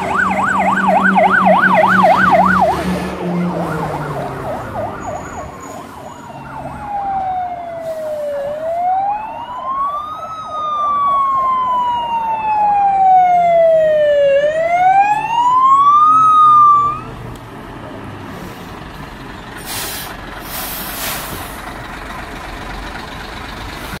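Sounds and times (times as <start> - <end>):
fire truck siren wailing: 0.0 - 17.3
truck engine running: 17.1 - 24.0
brief hiss: 19.6 - 21.5.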